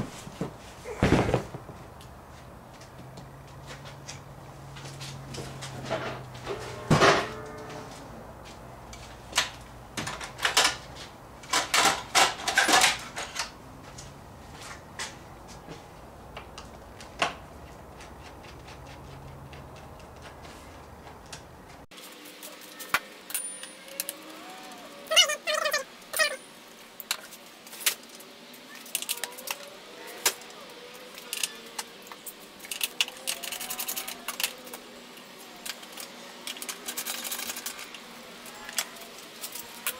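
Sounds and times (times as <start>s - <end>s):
steady low hum: 0.0s - 21.9s
tools and parts clicking and knocking: 8.9s - 13.6s, 22.9s - 24.4s, 31.2s - 34.8s, 35.6s - 38.0s.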